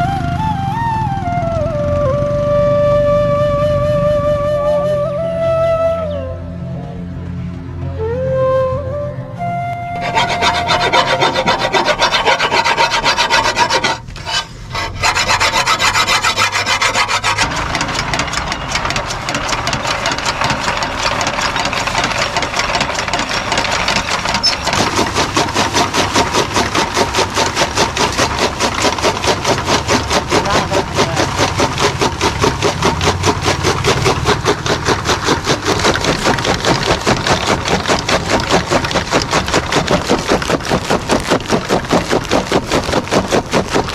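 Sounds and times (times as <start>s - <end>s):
machine chopping fodder stalks: 9.6s - 43.9s
file rasping on metal blade: 10.0s - 40.4s.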